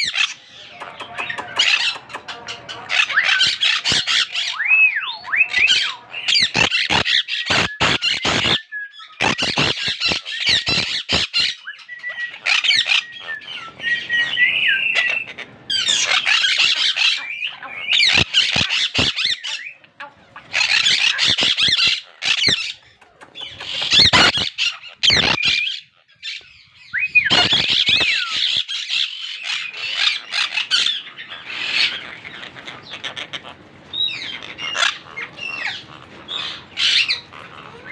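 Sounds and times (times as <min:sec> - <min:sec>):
parakeets screeching: 0:00.0 - 0:37.9
gliding whistled bird notes: 0:11.5 - 0:16.5.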